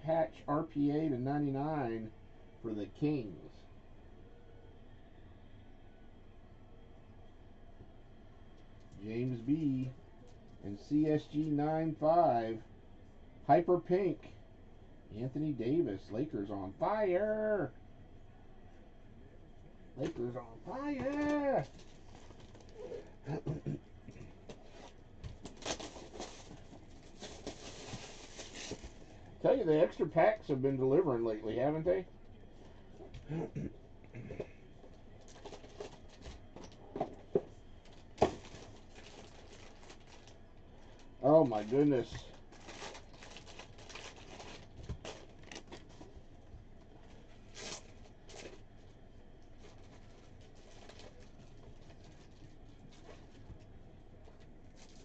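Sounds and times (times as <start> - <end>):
plastic shrink-wrap crinkling: 21.0 - 23.1, 24.5 - 29.1, 37.8 - 46.1, 47.5 - 48.6, 49.6 - 53.4, 54.7 - 55.0.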